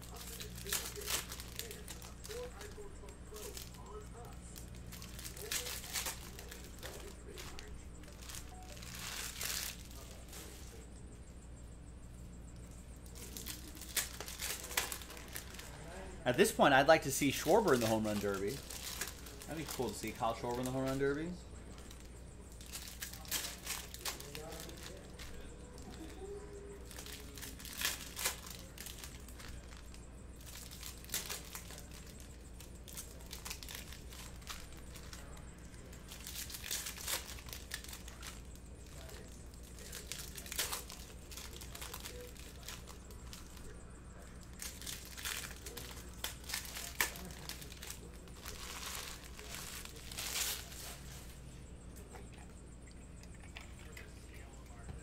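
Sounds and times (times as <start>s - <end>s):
cards being handled: 0.0s - 10.9s, 13.0s - 21.2s, 32.9s - 51.4s
foil wrappers crinkling: 0.0s - 10.9s, 12.9s - 51.4s.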